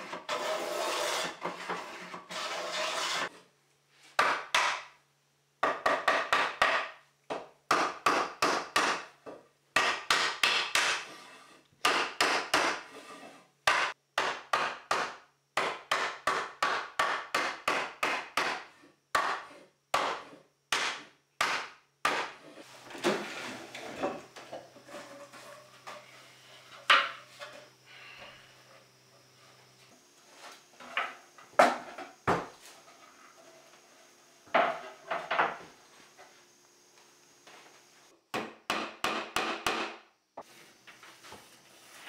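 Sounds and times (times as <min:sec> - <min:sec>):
chisel scraping wood: 0:00.0 - 0:03.4, 0:11.0 - 0:11.6.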